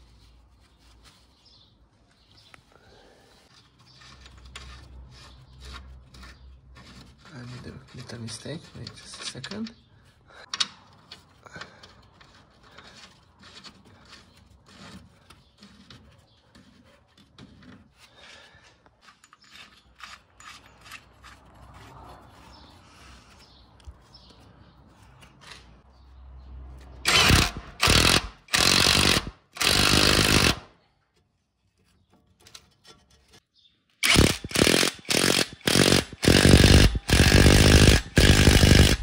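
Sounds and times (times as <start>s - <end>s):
impact wrench bursts: 27.0s - 30.7s, 34.0s - 39.0s.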